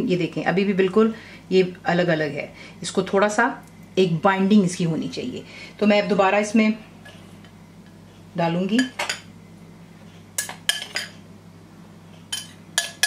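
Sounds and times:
metal spoon clinking on glass bowl: 12.3s - 13.0s.

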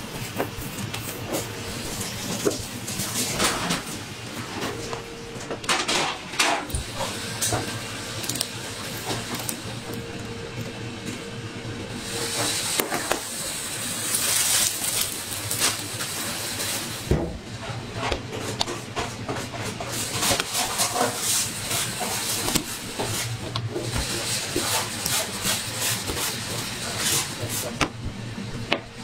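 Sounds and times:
steady low hum: 0.0s - 29.0s
rolling pin rolling dough: 14.0s - 29.0s.

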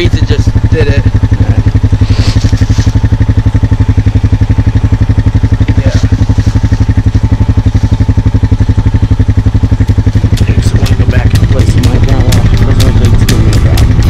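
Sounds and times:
small engine idling: 0.0s - 14.0s
sharp clicks: 9.9s - 14.0s.

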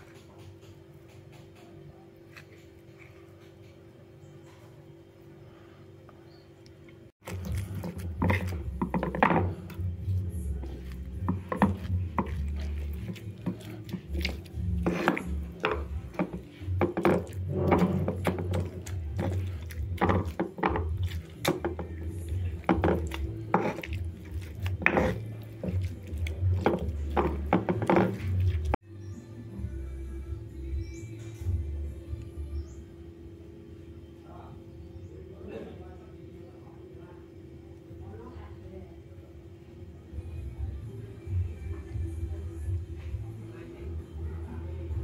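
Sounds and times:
stone pestle pounding in mortar: 7.3s - 28.8s.

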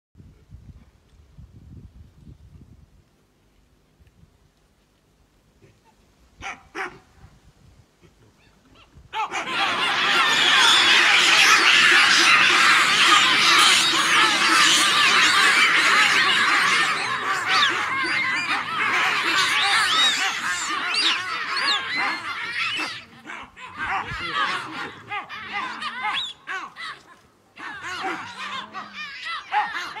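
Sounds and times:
baboons screaming and barking: 8.0s - 30.0s.

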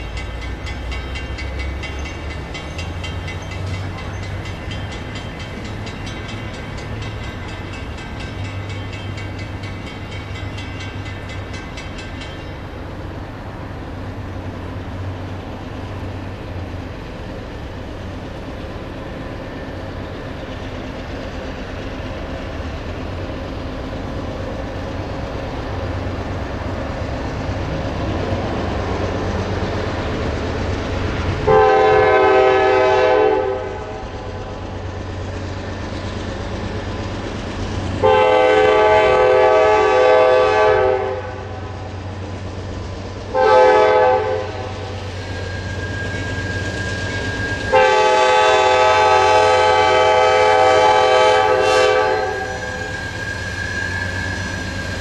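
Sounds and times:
diesel locomotive rumble: 0.0s - 55.0s
locomotive air horn blast: 31.5s - 34.0s, 38.0s - 41.6s, 43.3s - 44.8s, 47.7s - 52.9s.

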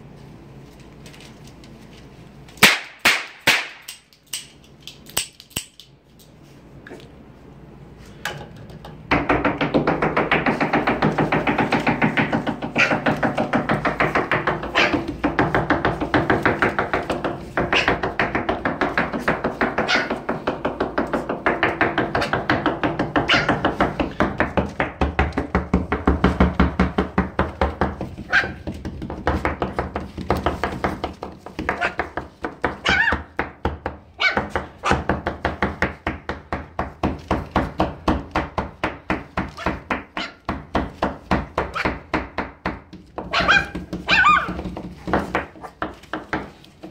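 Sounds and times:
puppy squeaks: 23.3s - 23.5s, 32.8s - 33.2s, 43.3s - 44.6s.

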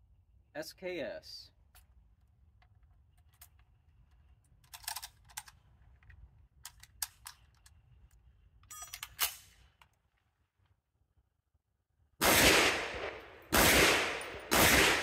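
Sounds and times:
metallic clicks of cartridges loading: 1.7s - 10.1s
rifle action rattle and clack: 1.7s - 10.3s.

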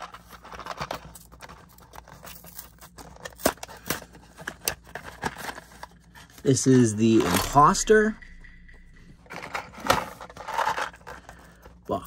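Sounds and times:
cardboard rustling and scraping: 0.0s - 7.2s.

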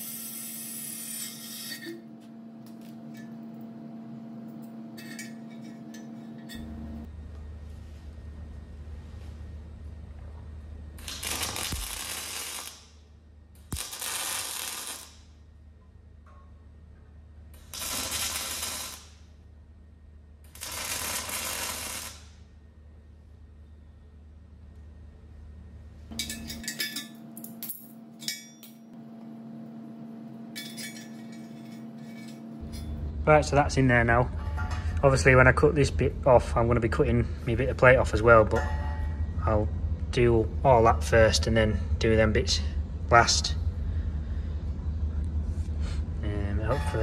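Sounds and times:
arc welding crackling: 0.0s - 1.8s, 11.0s - 15.4s, 17.6s - 19.3s, 20.5s - 22.5s
low hum: 0.0s - 17.8s, 22.3s - 47.0s
steel rods clinking on metal: 5.0s - 6.8s, 26.1s - 28.8s, 30.5s - 33.0s.

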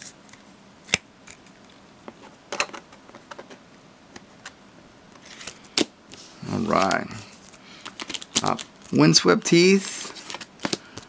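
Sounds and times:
plastic card sleeves crinkling: 5.2s - 11.0s.

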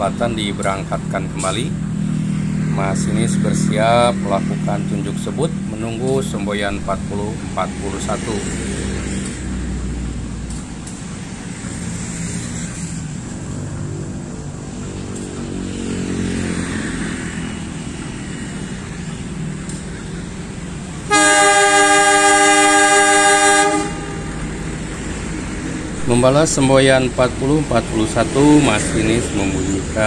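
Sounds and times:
diesel locomotive idling: 0.0s - 11.7s, 18.7s - 30.0s
locomotive horn blast: 21.0s - 25.0s.

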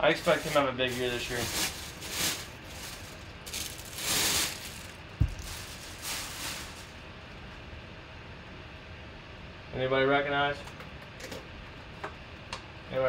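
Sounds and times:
plastic bag crinkling: 0.0s - 7.0s
helmet thump: 5.2s - 5.5s.

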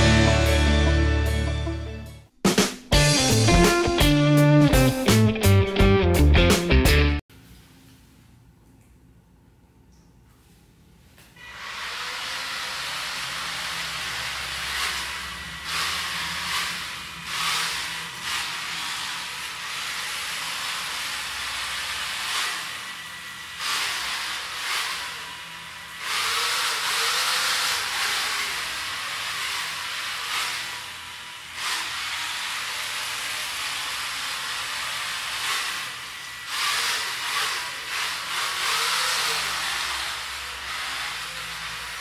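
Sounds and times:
small motors whirring: 11.4s - 42.0s.

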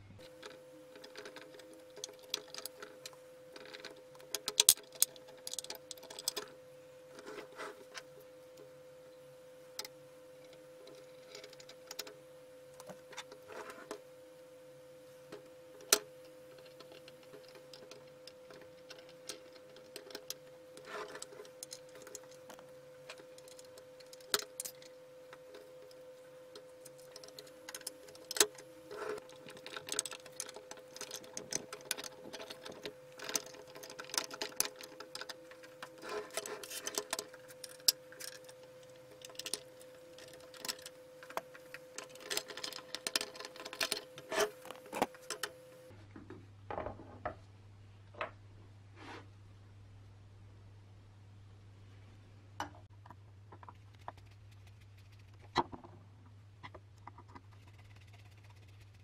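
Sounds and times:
faint steady hum: 0.0s - 59.0s.

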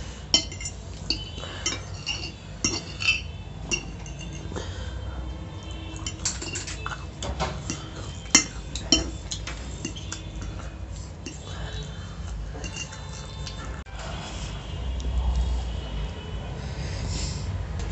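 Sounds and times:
fork clinking and scraping on plate: 0.0s - 4.6s, 5.6s - 11.6s, 12.5s - 13.8s.

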